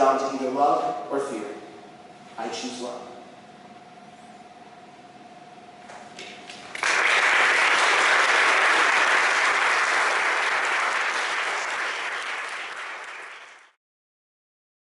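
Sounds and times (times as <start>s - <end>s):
audience applauding: 6.7s - 13.8s.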